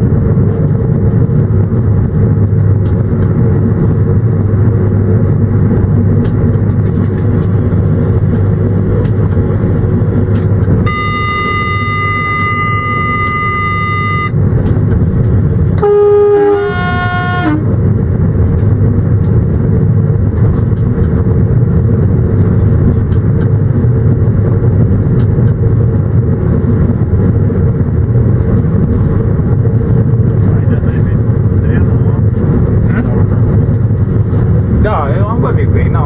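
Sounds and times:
locomotive rumble: 0:00.0 - 0:36.0
steady high-pitched tone: 0:06.9 - 0:14.4
train horn blast: 0:10.8 - 0:14.4, 0:15.3 - 0:17.8.

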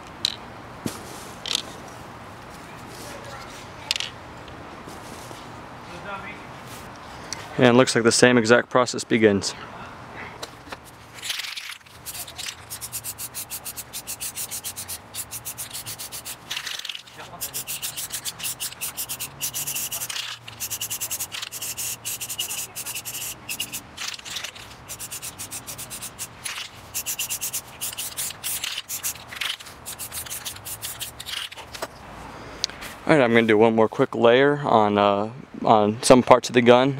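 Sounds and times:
spray can hissing: 0:11.2 - 0:31.6
spray can mixing ball rattling: 0:11.2 - 0:31.6.

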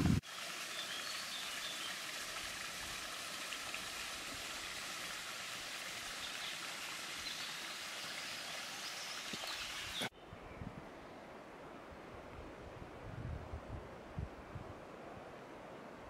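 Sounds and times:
stream rushing: 0:00.0 - 0:10.1.

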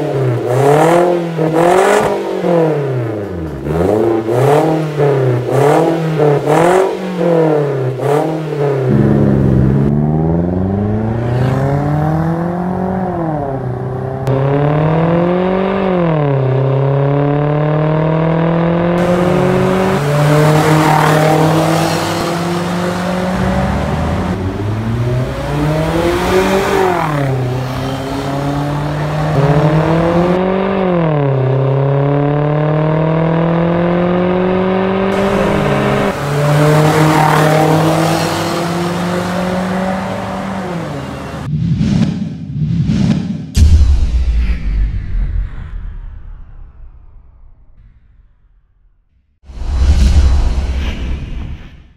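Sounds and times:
car engine revving: 0:00.0 - 0:41.5.

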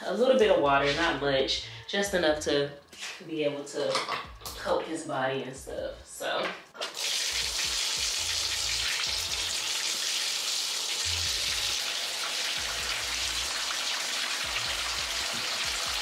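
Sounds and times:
faucet water splashing into tub: 0:06.8 - 0:16.0.

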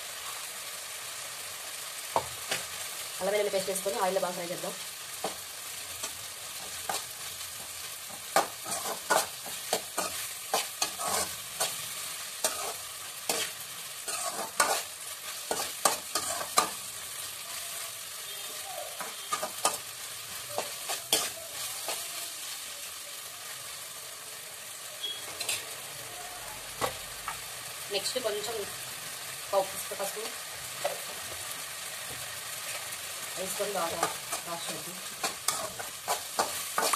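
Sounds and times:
vegetables sizzling in a pan: 0:00.0 - 0:36.9
metal spatula scraping a pan: 0:05.2 - 0:16.9, 0:18.5 - 0:22.2, 0:25.0 - 0:25.8, 0:32.7 - 0:36.9.

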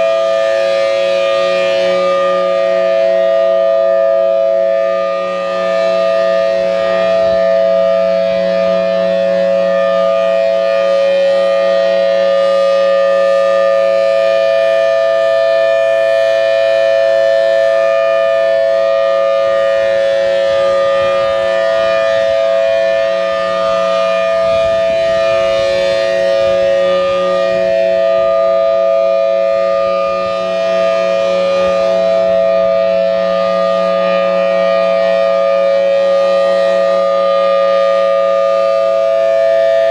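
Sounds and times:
siren steady two-note tone: 0:00.0 - 0:39.9.

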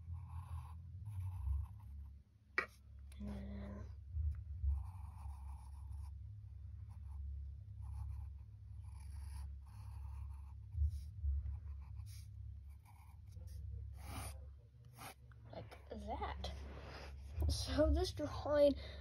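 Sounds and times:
pencil scratching on paper: 0:00.0 - 0:02.8, 0:04.1 - 0:15.2
low steady hum: 0:00.0 - 0:19.0
dull low thumps: 0:03.0 - 0:05.3, 0:10.4 - 0:12.8.

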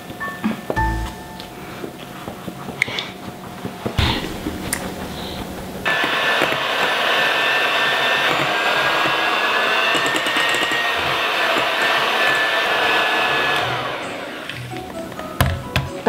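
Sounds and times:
electric hand mixer running: 0:04.1 - 0:15.0.

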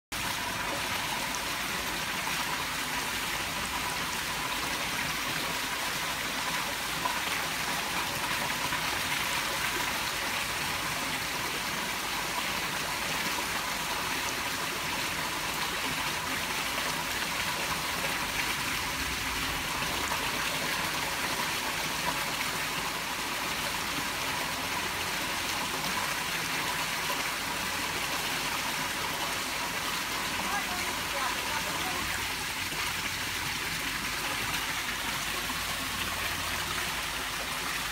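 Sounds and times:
running water rushing: 0:00.0 - 0:37.9.

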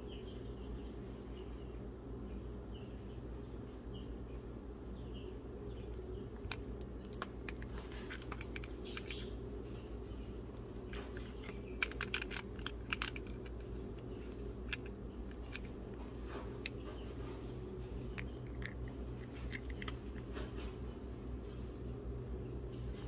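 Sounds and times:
steady low hum: 0:00.0 - 0:23.0
small metallic clicks: 0:06.4 - 0:09.4, 0:10.5 - 0:16.0, 0:18.0 - 0:20.3.

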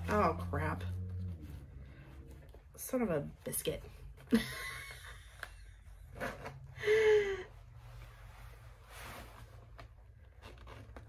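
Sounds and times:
zipper rustles and clicks: 0:05.9 - 0:06.8, 0:07.8 - 0:11.0.

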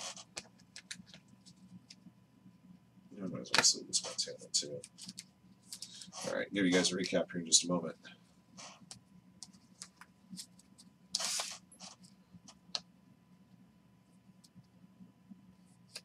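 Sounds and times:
card brushing slide: 0:11.2 - 0:12.0.

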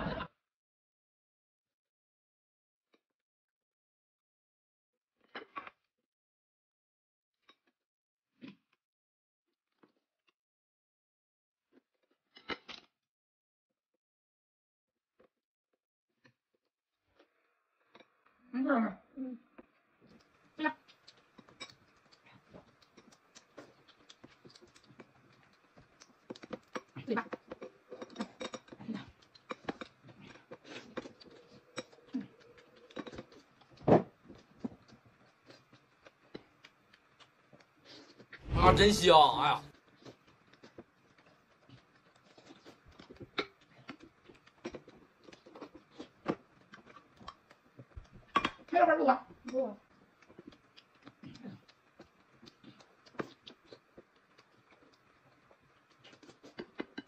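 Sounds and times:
chewing and mouth noises: 0:19.6 - 0:38.4, 0:39.7 - 0:48.7, 0:49.3 - 0:57.0.

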